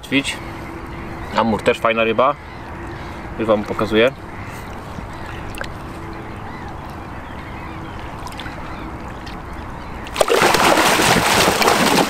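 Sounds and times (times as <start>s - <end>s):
fish splashing in water: 8.0s - 12.0s.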